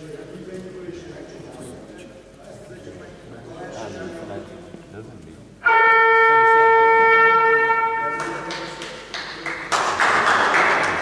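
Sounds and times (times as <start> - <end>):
voices in a hall: 0.0 - 11.0
scoreboard buzzer horn: 5.6 - 8.6.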